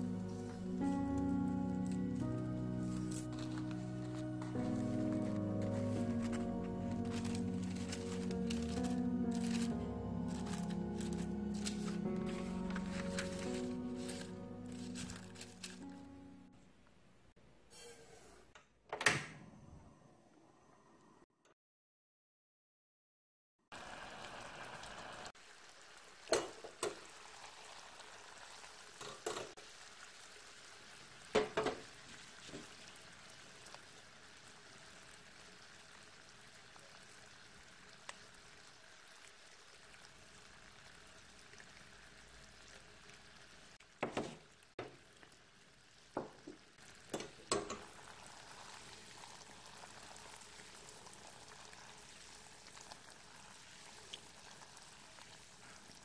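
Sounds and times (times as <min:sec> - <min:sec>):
syrup boiling in a saucepan: 0:23.7 - 0:56.0.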